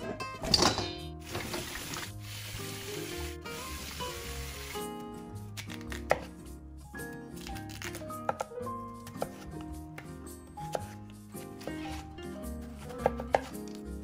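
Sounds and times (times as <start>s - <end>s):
background music: 0.0s - 14.0s
tap water running: 1.1s - 5.0s.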